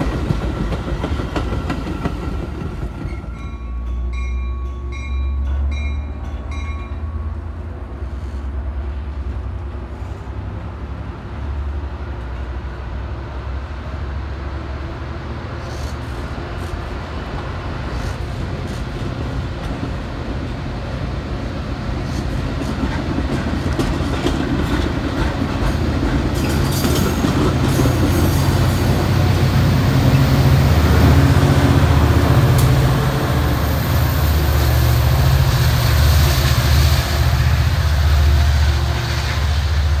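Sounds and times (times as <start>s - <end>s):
deep train rumble: 0.0s - 40.0s
train wheels clacking over rail joints: 22.0s - 29.2s.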